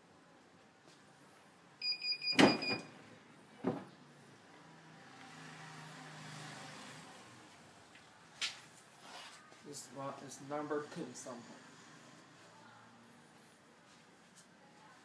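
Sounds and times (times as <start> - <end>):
heat press timer beeping: 1.8 - 2.9.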